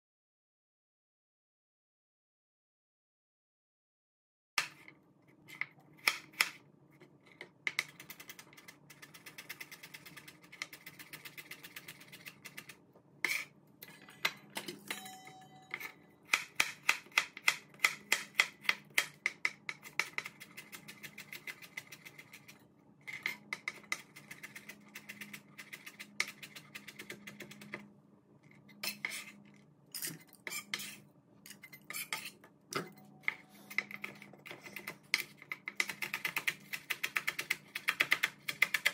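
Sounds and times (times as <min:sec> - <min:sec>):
knife chopping on cutting board: 0:16.3 - 0:22.5.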